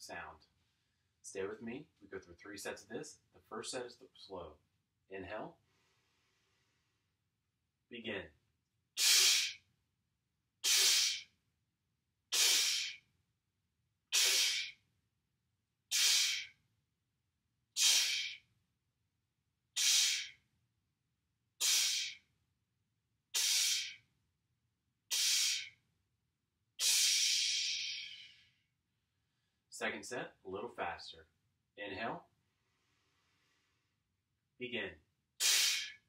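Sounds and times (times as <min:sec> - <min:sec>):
man's forceful hissing exhales: 0:09.0 - 0:09.6, 0:10.6 - 0:11.3, 0:12.3 - 0:13.0, 0:14.2 - 0:14.8, 0:15.9 - 0:16.5, 0:17.8 - 0:18.4, 0:19.8 - 0:20.4, 0:21.6 - 0:22.2, 0:23.4 - 0:24.0, 0:25.1 - 0:25.7, 0:26.8 - 0:28.4, 0:35.4 - 0:36.0.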